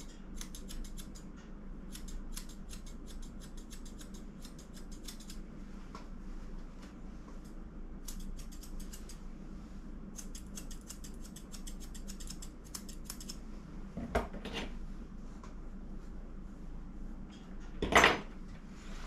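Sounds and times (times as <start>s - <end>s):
scissors snipping: 0.0s - 5.4s, 7.4s - 9.2s, 10.2s - 13.4s.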